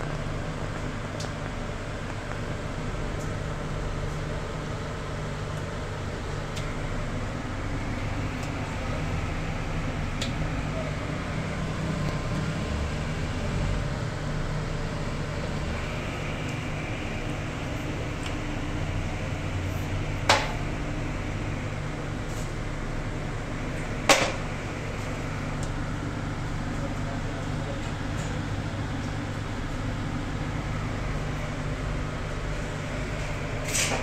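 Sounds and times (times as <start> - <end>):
low mechanical hum: 0.0 - 34.0.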